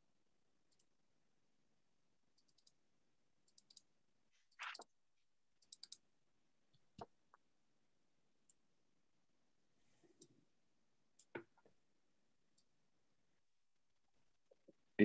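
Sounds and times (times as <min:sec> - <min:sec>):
computer mouse clicks: 0:00.7 - 0:00.9, 0:02.3 - 0:02.8, 0:03.4 - 0:04.9, 0:05.6 - 0:06.0, 0:11.2 - 0:11.7.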